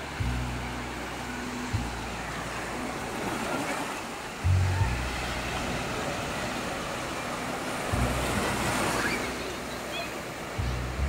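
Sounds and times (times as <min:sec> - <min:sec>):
surf breaking on a beach: 0:00.0 - 0:11.0
low rumble: 0:04.4 - 0:08.8.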